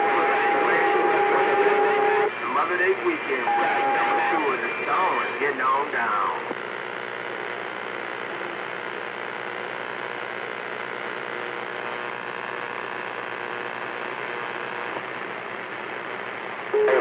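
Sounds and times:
faint steady tones: 0.0 - 8.6
radio static hiss: 0.0 - 17.0.

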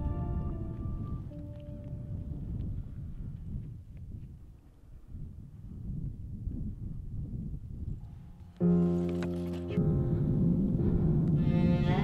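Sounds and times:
soundtrack music held low note: 0.0 - 2.7, 8.1 - 12.0.

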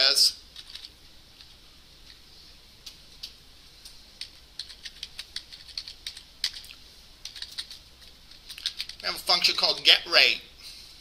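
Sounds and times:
computer keyboard typing: 0.6 - 0.9, 4.2 - 9.1.

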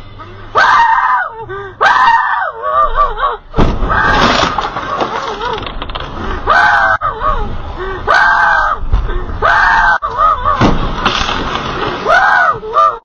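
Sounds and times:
low thuds: 3.5 - 6.5, 10.1 - 12.0.

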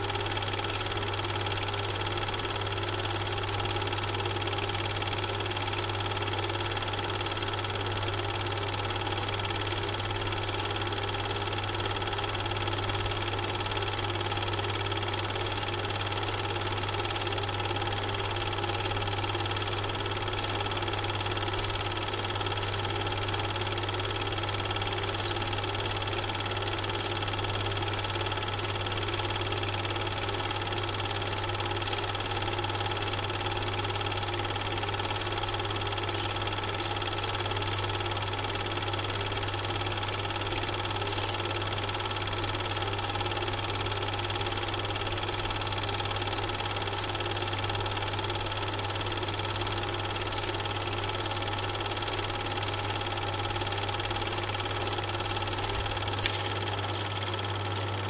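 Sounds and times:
film projector running: 0.0 - 58.0
small click: 2.2 - 2.6, 7.2 - 8.2, 12.0 - 13.3, 26.9 - 27.2, 37.7 - 38.1, 40.6 - 43.2, 55.6 - 57.9.

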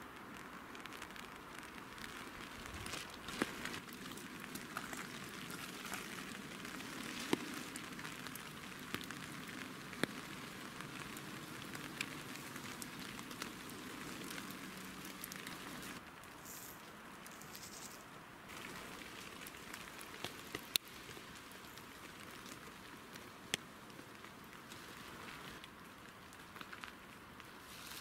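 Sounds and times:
rain falling on grass: 0.0 - 28.0
single raindrops hitting close: 0.0 - 28.0.

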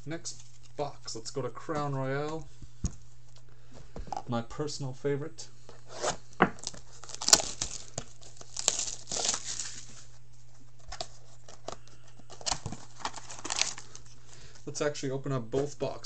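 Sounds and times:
plastic wrap crinkling and tearing: 6.6 - 10.1, 10.9 - 14.2.

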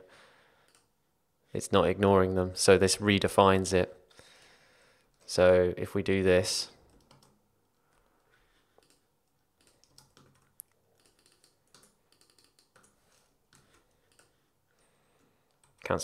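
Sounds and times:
keyboard keystrokes: 6.9 - 7.4, 9.6 - 14.3.

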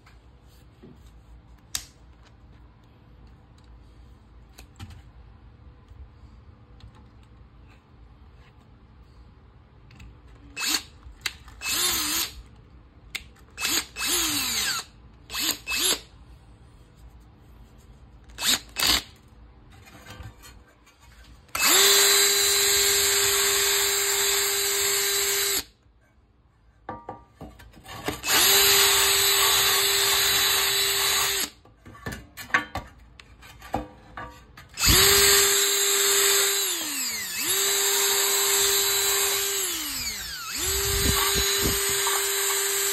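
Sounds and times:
cordless drill motor whine: 10.6 - 10.9, 11.6 - 12.4, 13.6 - 16.1, 21.6 - 25.7, 28.2 - 31.6, 34.8 - 42.9.

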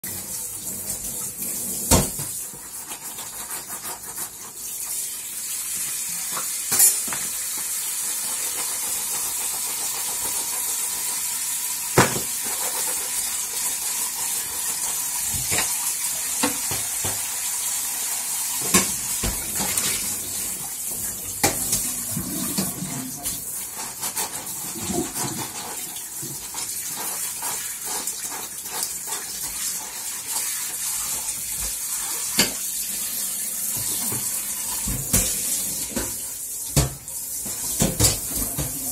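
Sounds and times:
sponge scrubbing a dish: 0.0 - 6.4, 7.3 - 36.4
dishware clinking against metal sink: 6.3 - 7.4, 33.8 - 38.9.

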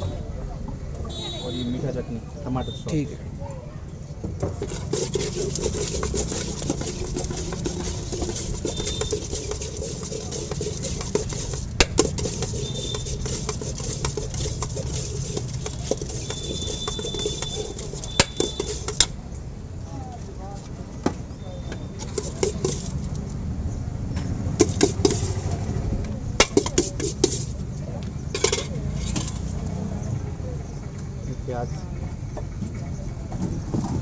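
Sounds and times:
puffed rice mixed by hand: 4.6 - 19.1, 22.0 - 23.3, 24.6 - 25.6, 26.4 - 27.6.

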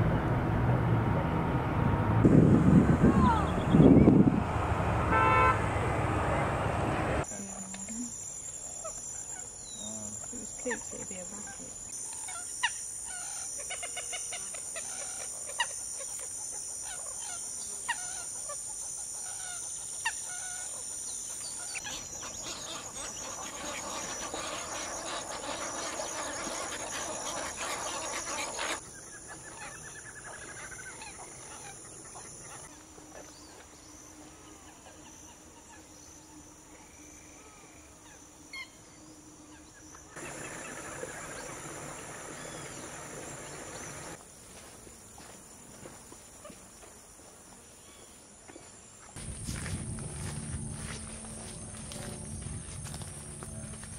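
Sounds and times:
birds calling: 3.1 - 4.4, 7.2 - 36.5, 37.4 - 44.2
high insect drone: 5.1 - 53.9.

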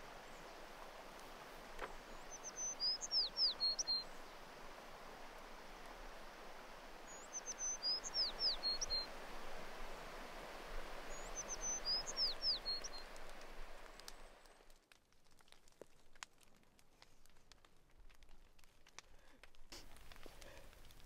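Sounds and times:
steady outdoor hiss: 0.0 - 14.7, 19.0 - 21.0
songbird whistling: 2.1 - 4.1, 7.1 - 9.1, 11.1 - 13.0.

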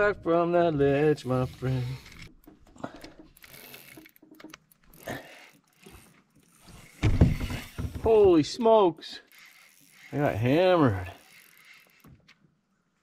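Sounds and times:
fishing reel gears ticking: 1.0 - 7.9, 9.2 - 12.4
loud thump: 7.0 - 8.0.

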